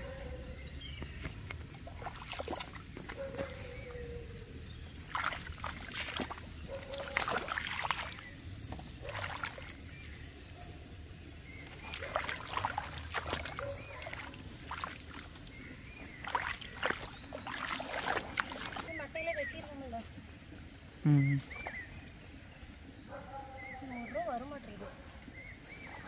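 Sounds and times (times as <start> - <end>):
birds chirping: 0.0 - 26.0
bare feet splashing through water: 0.8 - 4.0, 4.7 - 10.1, 11.4 - 19.6.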